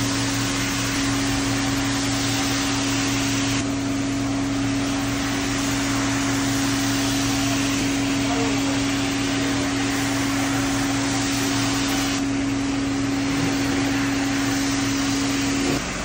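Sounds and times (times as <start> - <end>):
floor machine motor hum: 0.0 - 16.0
brush scrubbing wet rug: 4.6 - 16.0.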